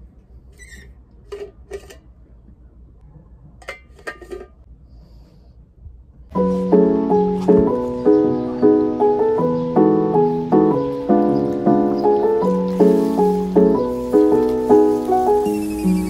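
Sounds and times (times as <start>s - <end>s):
loud piano music: 6.3s - 16.0s.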